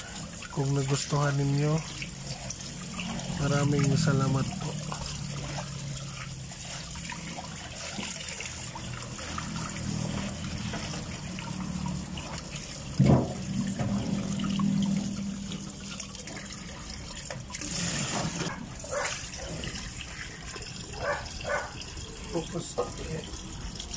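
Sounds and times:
tap water running into pot: 0.0s - 23.9s.

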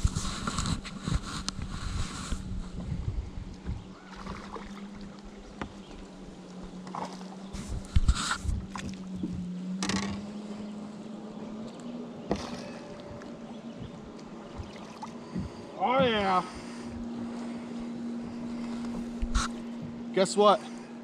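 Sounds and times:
wind buffeting microphone: 0.0s - 6.3s, 7.4s - 10.3s, 11.5s - 20.2s
low hum: 0.0s - 21.0s
fish splashing at the surface: 4.0s - 5.1s.

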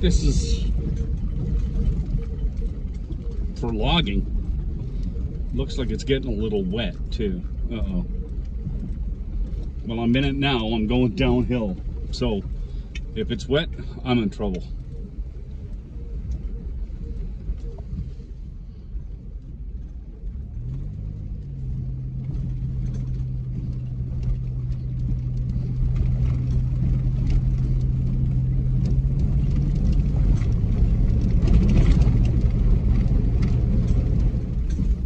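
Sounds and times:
car engine hum: 0.0s - 35.0s
tyre and road rumble on gravel: 19.8s - 35.0s.

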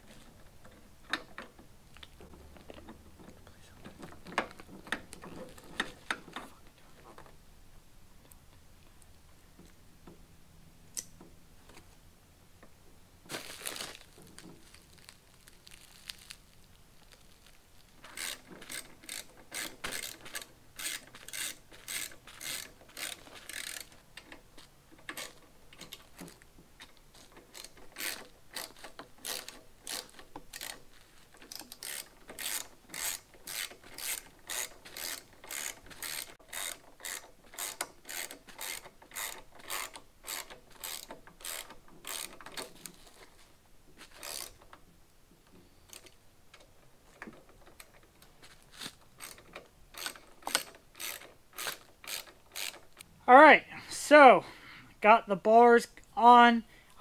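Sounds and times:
plastic wrap crinkling: 13.3s - 18.5s
hand ratchet clicking: 18.0s - 24.4s, 27.2s - 42.8s, 44.1s - 44.7s, 48.8s - 53.1s.

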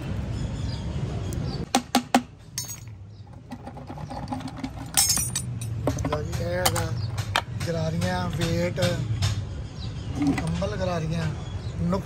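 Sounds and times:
metal clinks of tools: 2.6s - 3.0s, 4.4s - 7.3s.

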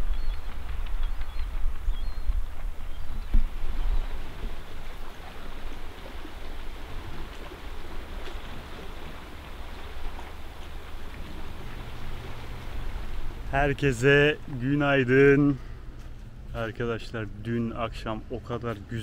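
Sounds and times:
wind on microphone: 0.0s - 13.9s
sea washing: 0.0s - 19.0s.

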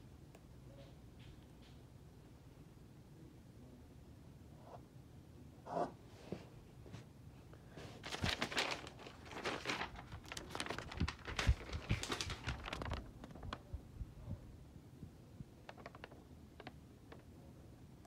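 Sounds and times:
rustling handling noise: 7.7s - 13.8s, 15.6s - 17.3s
paper crinkling: 7.8s - 13.8s, 15.6s - 16.8s.

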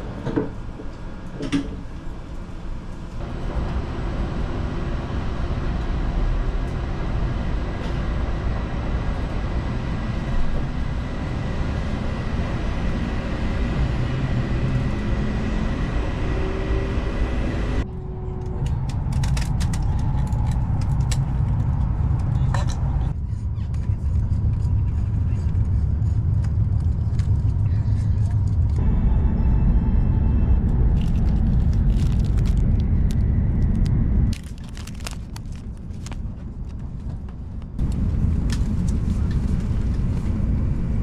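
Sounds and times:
train running rumble: 0.0s - 41.0s.

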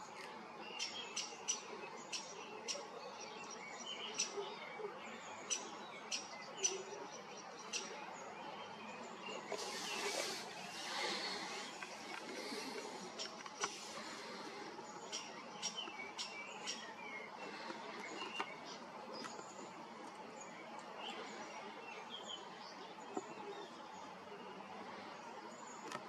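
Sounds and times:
background hiss: 7.6s - 26.0s.

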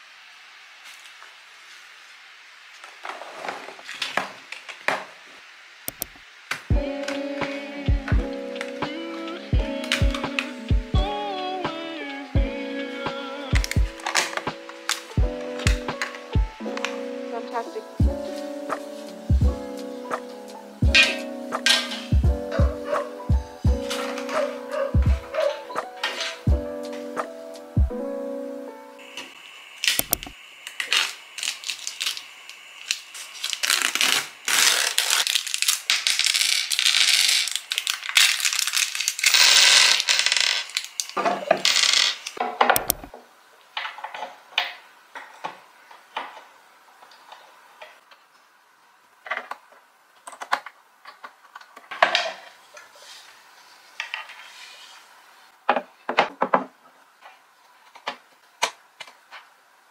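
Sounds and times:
plastic packaging crinkling: 29.8s - 43.1s.

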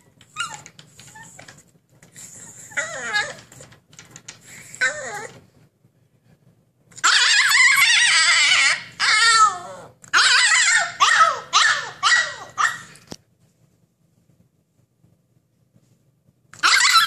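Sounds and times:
puppy yowling: 0.0s - 1.5s, 2.7s - 3.6s, 4.8s - 5.4s, 7.0s - 13.0s, 16.6s - 17.0s.

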